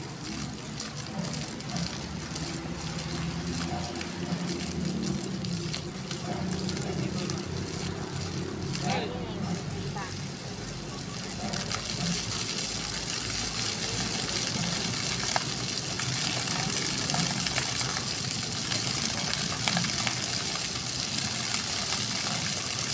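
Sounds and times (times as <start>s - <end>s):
fountain jets splashing: 0.0s - 22.9s.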